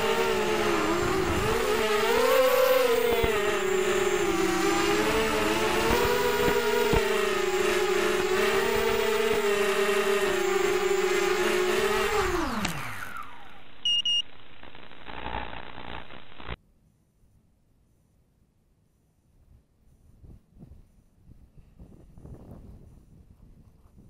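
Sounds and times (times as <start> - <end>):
drone motors whining: 0.0 - 16.6
short electronic beeps: 13.8 - 15.5.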